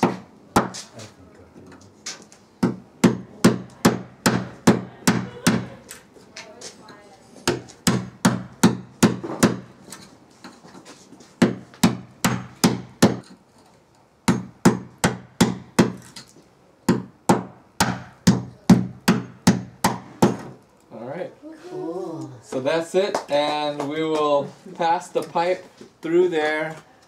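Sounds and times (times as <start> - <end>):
hammer striking masonry wall: 0.0 - 0.9, 2.6 - 5.8, 7.4 - 9.8, 11.4 - 13.3, 14.2 - 16.3, 16.9 - 20.6.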